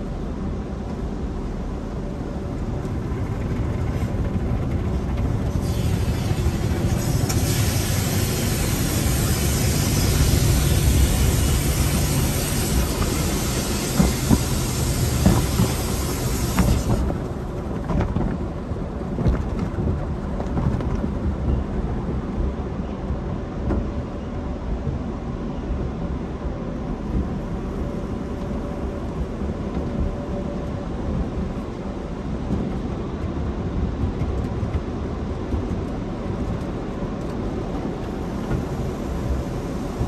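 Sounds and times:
car wash equipment rumble: 0.0s - 20.0s
loud hiss: 5.6s - 17.1s.

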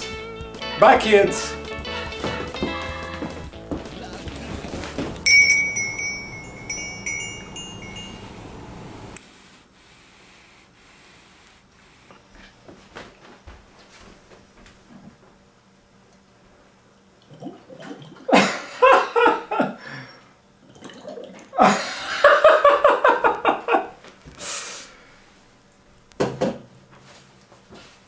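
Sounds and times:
man laughing: 18.3s - 19.9s, 21.6s - 24.0s.

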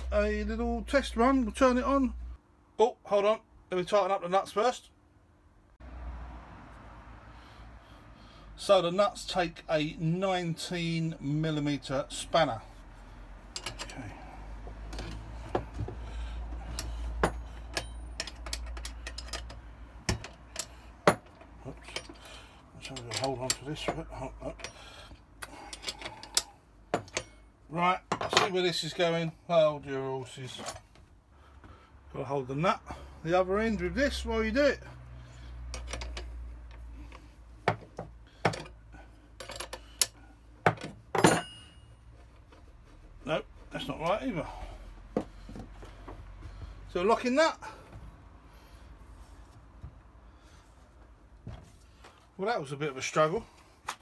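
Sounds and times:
spanner clicking on metal nut: 13.5s - 14.0s, 16.7s - 22.2s, 22.8s - 24.0s
metal spanners clinking on nuts: 13.5s - 14.1s, 16.6s - 27.4s, 35.6s - 36.4s, 38.4s - 40.2s, 40.8s - 42.0s.

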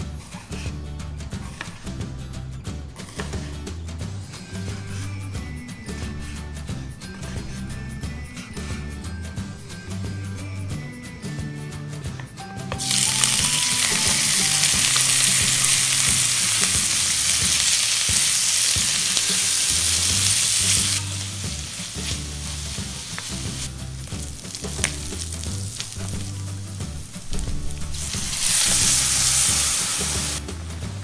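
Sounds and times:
wooden spoon stirring in pan: 12.7s - 30.4s
bacon and onion sizzling in oil: 12.7s - 31.0s.

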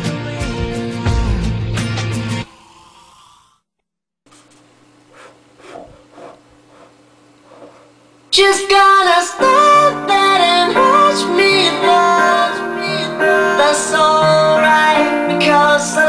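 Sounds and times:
steady low hum: 4.3s - 8.6s.

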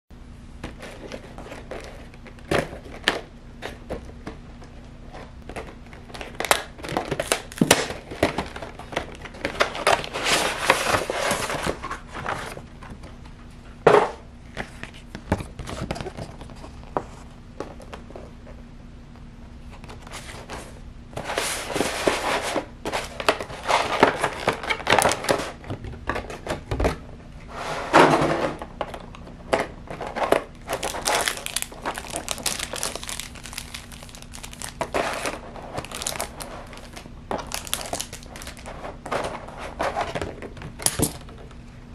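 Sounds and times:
plastic and paper crinkling: 5.2s - 12.7s, 29.9s - 41.0s.

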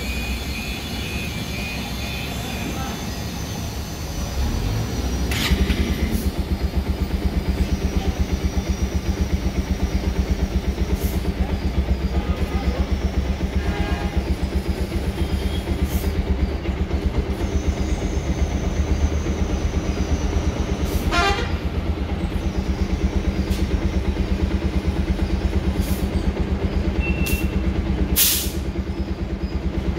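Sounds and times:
engine idling: 0.0s - 29.9s
brief chirp: 27.0s - 27.6s
short hiss: 28.2s - 28.6s.

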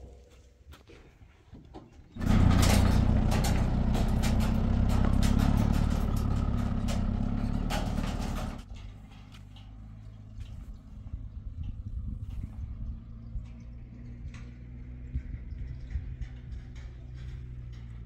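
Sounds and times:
rattling: 2.2s - 9.3s
engine running loud: 2.2s - 18.0s.

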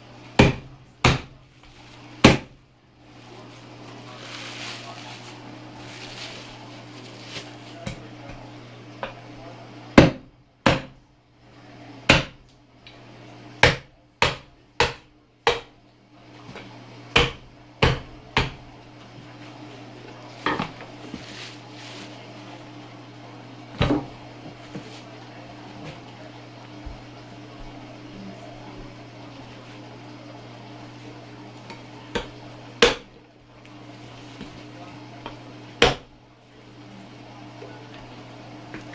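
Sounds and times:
knife chopping on cutting board: 0.4s - 1.4s, 2.2s - 2.6s, 10.0s - 11.0s, 12.1s - 12.4s, 13.6s - 15.7s, 17.2s - 18.6s, 32.1s - 33.1s, 35.8s - 36.1s.

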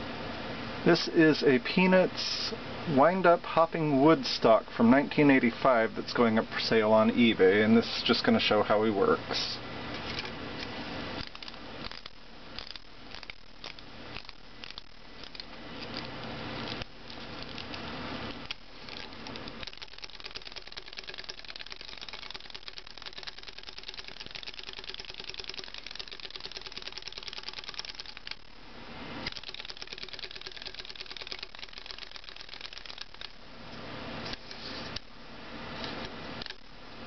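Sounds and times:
clockwork toy fast clicking: 11.2s - 28.4s, 29.2s - 33.4s, 36.4s - 36.6s
toy being wound clicking: 11.2s - 28.4s, 29.2s - 33.4s.

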